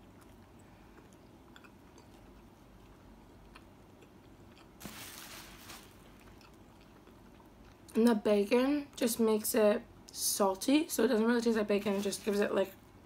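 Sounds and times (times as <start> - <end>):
chewing bread: 0.0 - 4.9, 6.0 - 8.0.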